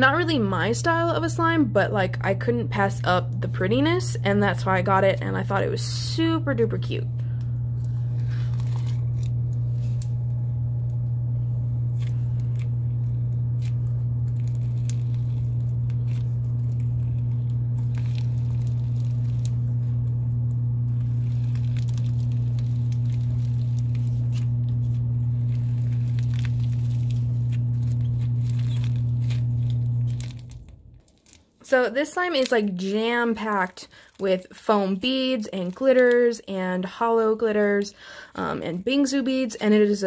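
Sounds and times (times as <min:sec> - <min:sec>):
loud low hum: 0:00.0 - 0:31.1
slime clicks and crackles: 0:12.0 - 0:19.9, 0:20.9 - 0:31.6.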